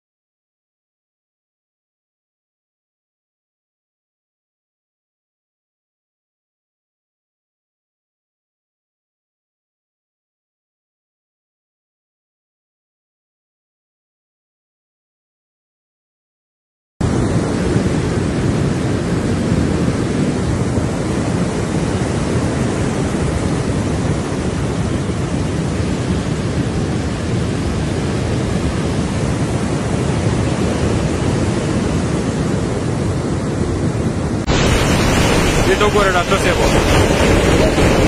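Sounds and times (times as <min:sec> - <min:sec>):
river torrent roaring: 0:17.0 - 0:38.0.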